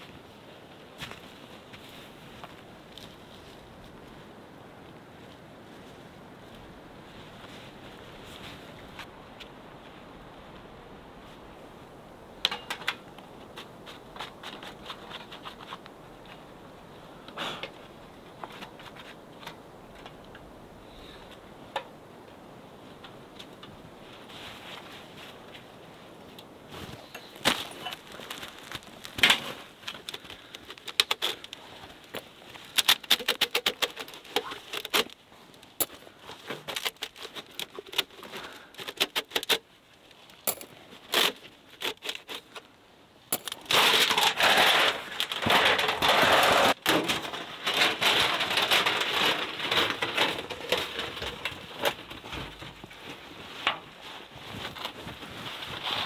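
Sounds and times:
metal pipe scraping and rustling: 43.3 - 56.0.

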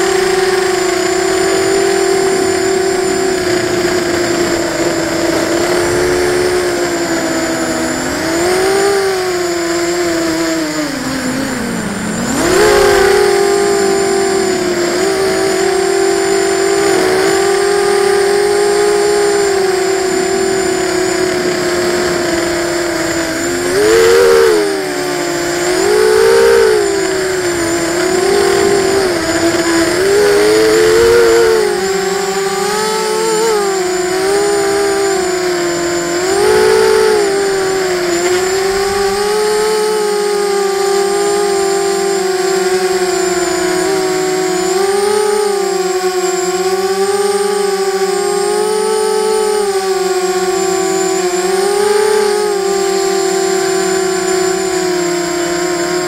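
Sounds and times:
quadcopter motors whining: 0.0 - 56.0.

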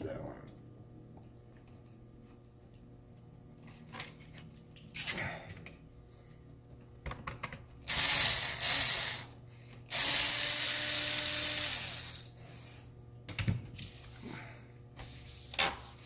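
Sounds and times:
electric screwdriver running: 7.9 - 9.3, 9.9 - 12.3.

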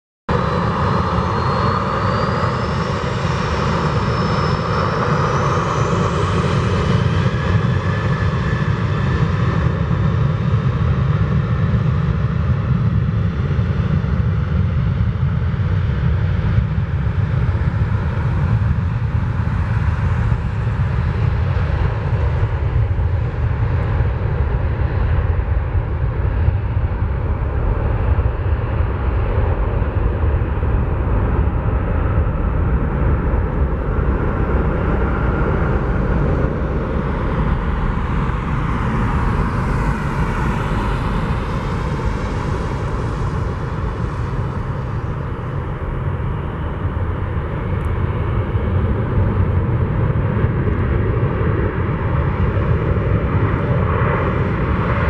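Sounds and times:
jet engine rumble: 0.3 - 55.0
high fan whine: 28.8 - 55.0.

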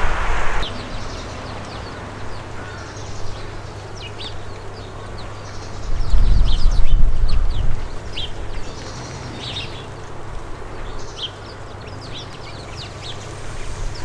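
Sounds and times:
low rumble: 0.0 - 1.4, 12.6 - 14.0
sparrows chirping: 0.6 - 14.0.

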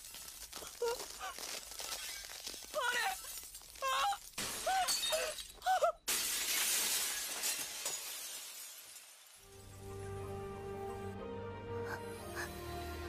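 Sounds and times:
crystal shattering: 1.7 - 9.8.

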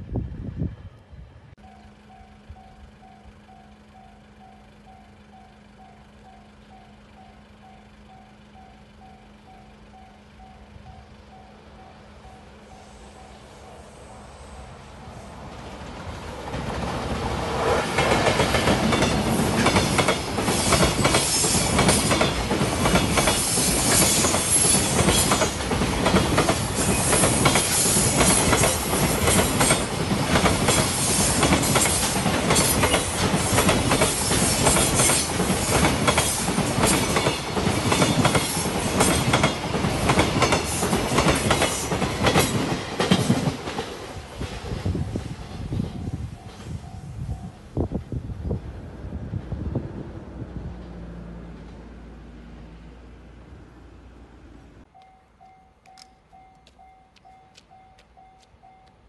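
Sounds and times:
freight train rumbling past: 0.0 - 59.0
wheels clattering over rail joints: 15.8 - 46.7.

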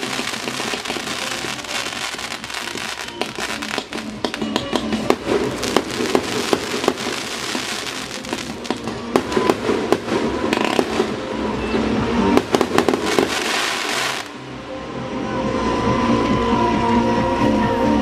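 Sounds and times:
fireworks bangs and crackling: 0.0 - 14.4.

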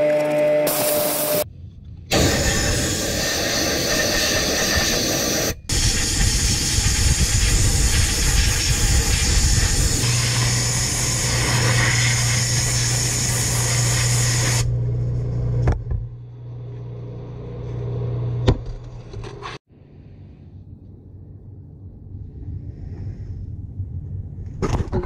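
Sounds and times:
sandblaster air hiss: 2.1 - 14.7.

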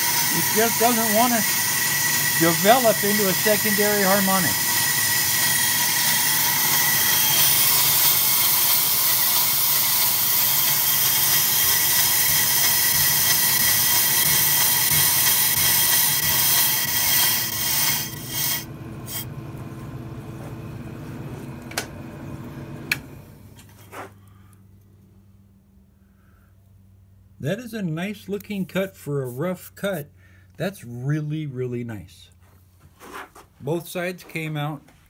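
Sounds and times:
lathe cutting metal rotor: 0.0 - 19.3
lathe running: 0.0 - 23.2.

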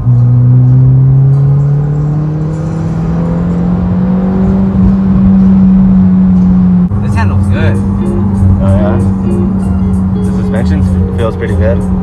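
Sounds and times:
car engine accelerating: 0.0 - 12.0.

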